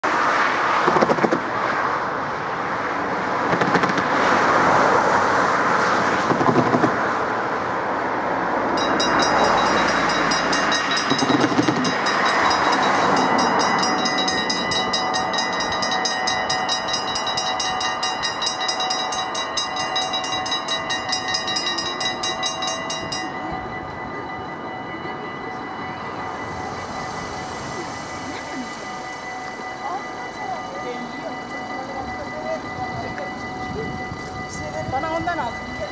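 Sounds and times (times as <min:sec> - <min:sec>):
road traffic rushing: 0:00.0 - 0:35.9
level crossing warning bell: 0:08.0 - 0:35.9.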